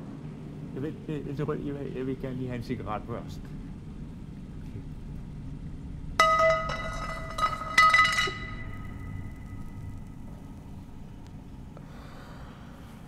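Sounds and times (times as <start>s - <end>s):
ringing metallic clinks: 6.2s - 9.4s.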